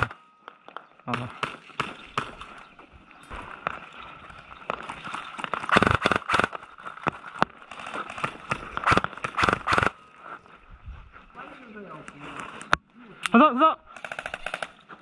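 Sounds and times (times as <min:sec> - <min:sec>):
airsoft gun shots: 0:05.7 - 0:06.5, 0:08.8 - 0:10.0.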